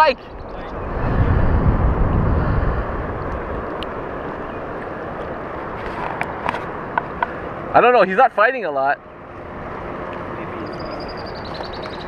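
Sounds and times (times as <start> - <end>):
wind on microphone: 0.0 - 6.6.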